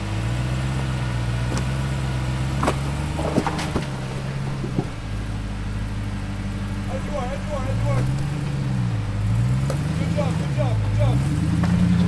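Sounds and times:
engine running at low revs: 0.0s - 12.0s
sharp knocks and clicks: 2.6s - 5.0s.

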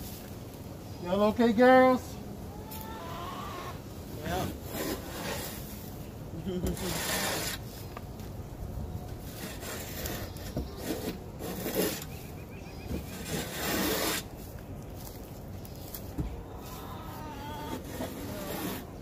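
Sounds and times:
hoe scraping wooden floor: 4.4s - 5.7s, 6.7s - 7.9s, 9.2s - 14.5s, 16.0s - 19.0s.

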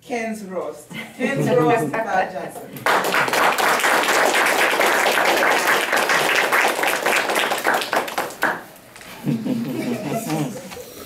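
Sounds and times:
audience applauding: 2.8s - 8.7s.

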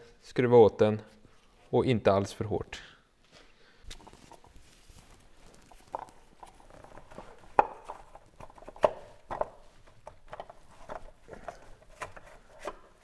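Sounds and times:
plastic cap clicking and knocking: 6.8s - 12.9s.

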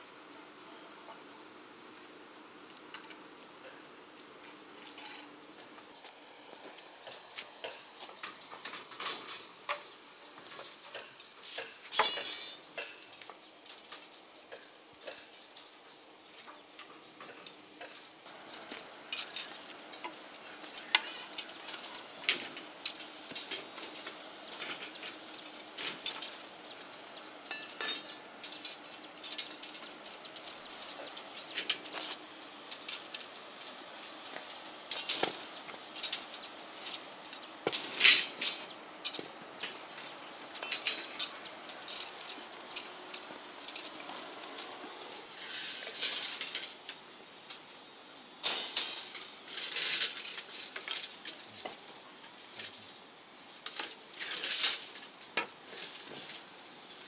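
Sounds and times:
metallic clinks and knocks: 11.9s - 14.2s, 17.2s - 46.8s, 48.4s - 52.9s, 53.6s - 57.0s.

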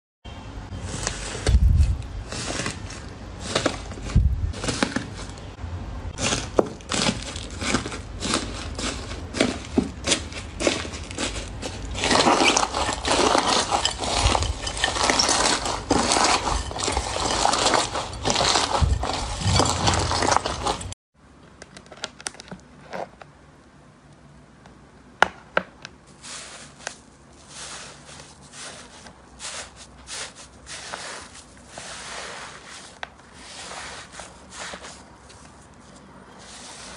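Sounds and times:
slime crackling and crunching: 6.2s - 20.9s.

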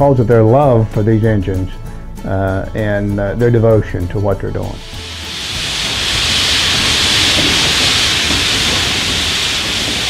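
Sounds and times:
low rumble: 4.8s - 10.0s
steam locomotive venting steam: 4.9s - 10.0s.

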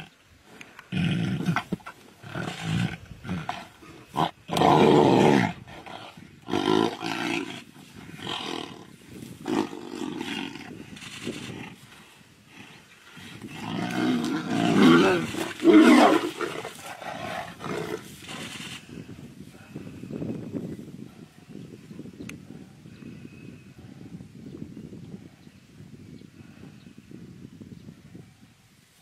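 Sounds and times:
tigers growling and snarling: 0.0s - 18.9s.

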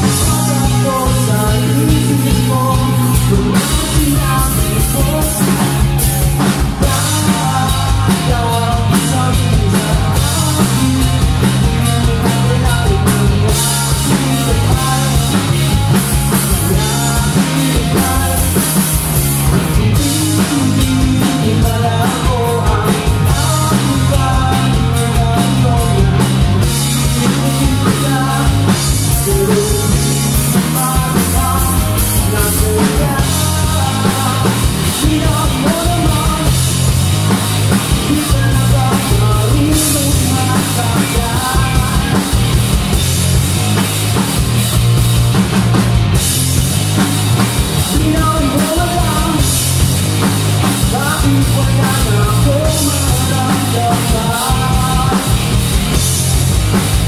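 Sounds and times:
drum kit: 0.0s - 57.0s
electric bass: 0.0s - 57.0s
electric guitars: 0.0s - 57.0s.

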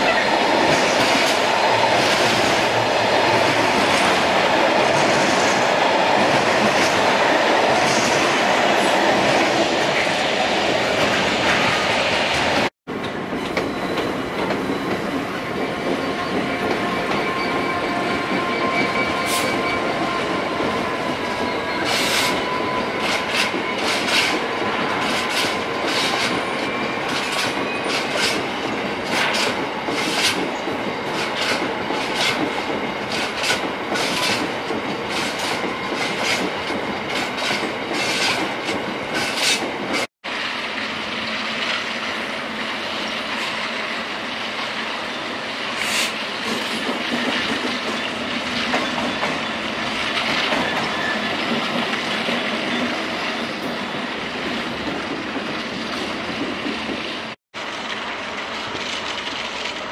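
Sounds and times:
train wagons rumbling: 0.0s - 40.1s, 44.8s - 59.9s
high wheel squeal: 15.7s - 28.4s, 50.6s - 51.5s.

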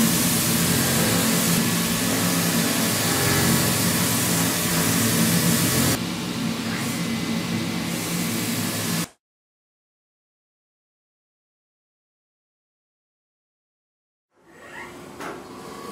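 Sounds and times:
milling cutter hissing: 0.0s - 6.0s.

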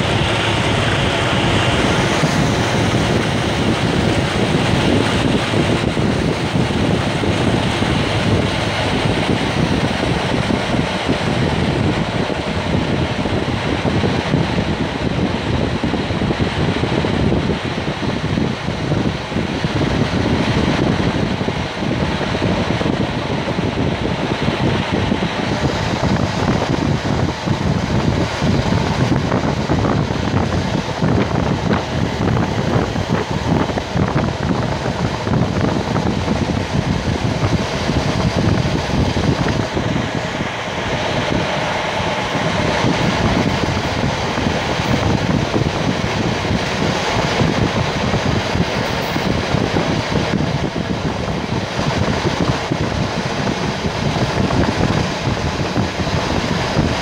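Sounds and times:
train rolling on track: 0.0s - 57.0s.

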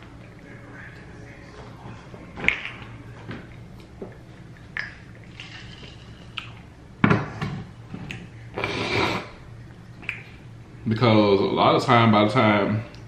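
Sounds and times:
wet eating smacks and clicks: 9.7s - 10.4s.

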